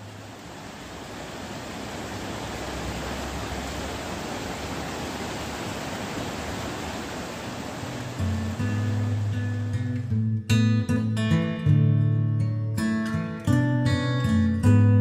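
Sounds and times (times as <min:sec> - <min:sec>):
running water rushing: 0:00.0 - 0:10.2.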